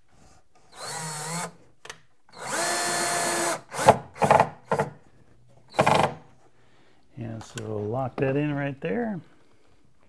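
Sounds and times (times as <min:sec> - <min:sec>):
cordless drill driving screw: 0:00.7 - 0:01.6, 0:02.3 - 0:04.9, 0:05.7 - 0:06.2.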